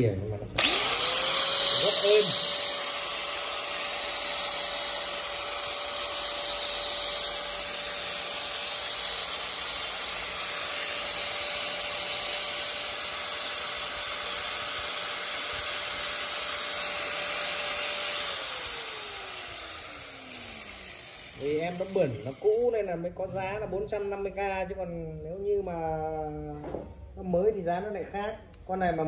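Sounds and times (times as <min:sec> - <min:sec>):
angle grinder whining: 0:00.6 - 0:22.9.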